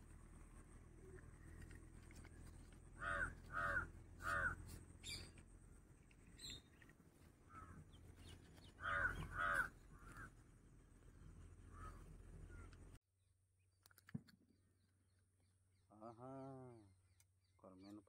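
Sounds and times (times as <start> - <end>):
crow cawing: 3.0 - 4.7, 7.5 - 7.9, 8.8 - 10.3, 11.7 - 12.1.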